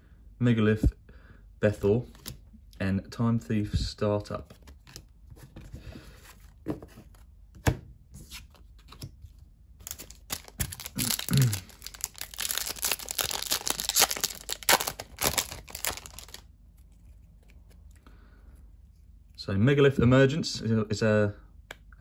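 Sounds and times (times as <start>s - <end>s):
foil wrapper crinkling and tearing: 9.8s - 18.0s.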